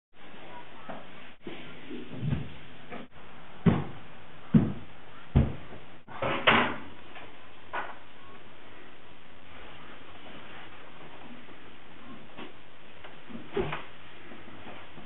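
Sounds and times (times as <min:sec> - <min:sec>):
footsteps on carpeted stairs: 0:00.9 - 0:06.0.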